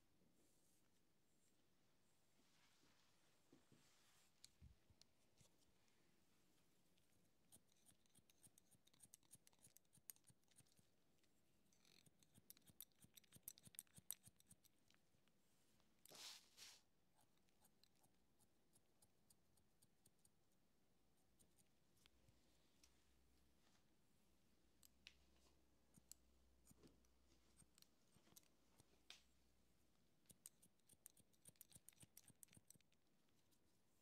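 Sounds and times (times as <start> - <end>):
scissors snipping hair: 7.4 - 10.8, 11.8 - 14.8, 30.2 - 33.0.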